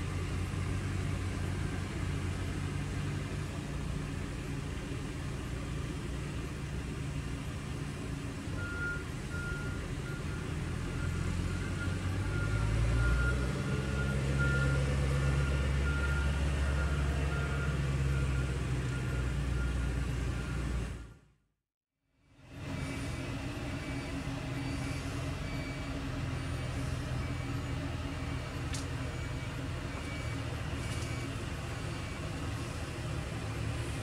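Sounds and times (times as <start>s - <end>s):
diesel engine rumble: 0.0s - 21.5s, 22.2s - 34.0s
reversing alarm beeping: 8.6s - 21.2s, 22.8s - 32.8s.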